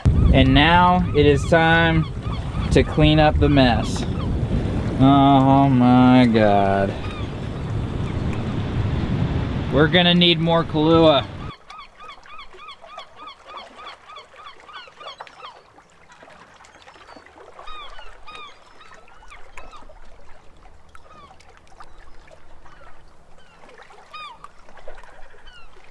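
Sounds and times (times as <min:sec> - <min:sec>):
rapid run of short bird calls: 0:00.0 - 0:04.5, 0:06.8 - 0:08.7, 0:10.7 - 0:15.6
birds calling at different pitches: 0:00.0 - 0:15.8, 0:16.7 - 0:20.1, 0:20.8 - 0:25.9.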